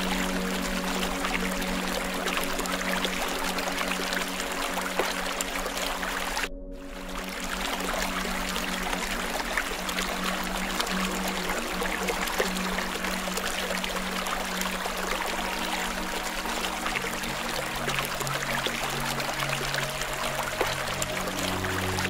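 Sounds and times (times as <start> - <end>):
faint low sustained tones: 0.0 - 22.0
trickling running water: 0.0 - 22.0.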